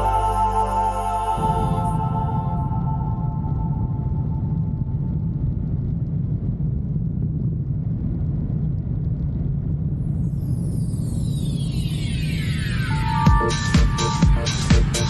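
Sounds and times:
falling sweep of high tones: 0.0 - 4.3, 10.6 - 15.0.

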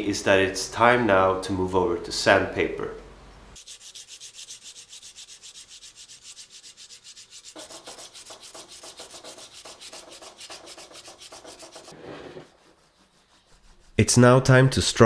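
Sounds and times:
sandpaper rubbing on axe edge: 3.6 - 14.6.

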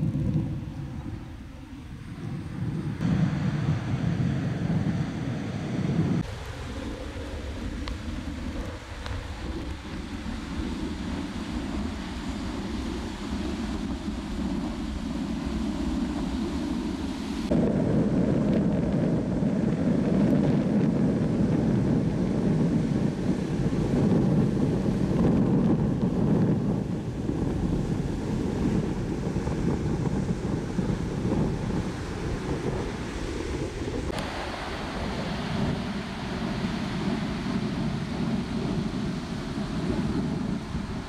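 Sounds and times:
wind buffeting microphone: 0.0 - 41.0
ocean surf breaking: 21.3 - 41.0.

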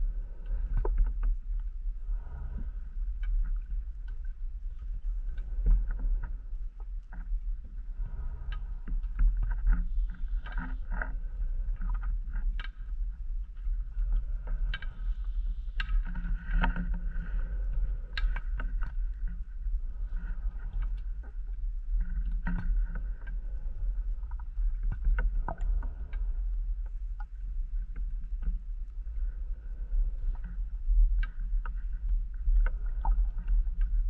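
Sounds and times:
low underwater rumble: 0.0 - 34.0
scuba breathing and bubbles: 0.0 - 34.0
sharp clicks and crackles: 8.4 - 17.4, 18.0 - 19.5.

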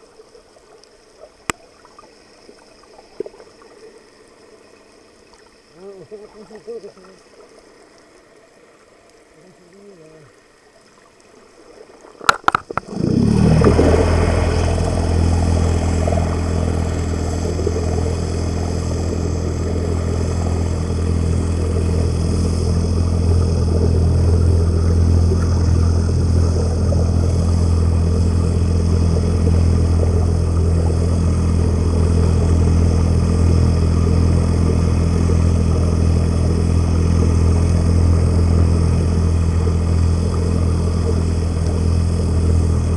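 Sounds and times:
boat engine droning underwater: 0.0 - 42.9
sharp knocks underwater: 12.2 - 13.0.

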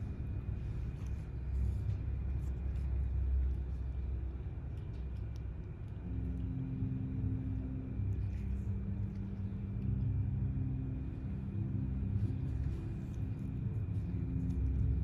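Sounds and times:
low background rumble: 0.0 - 15.0
low hum: 0.0 - 15.0.

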